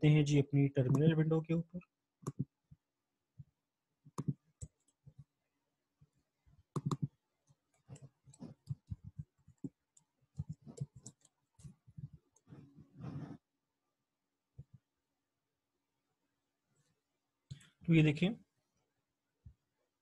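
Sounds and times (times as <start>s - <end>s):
keyboard typing: 2.2s - 2.5s, 4.1s - 5.3s, 6.7s - 12.7s.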